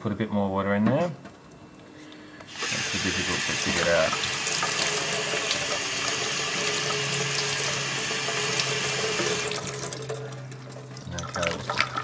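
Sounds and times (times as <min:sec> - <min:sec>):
tap running into metal sink: 0:03.6 - 0:10.2.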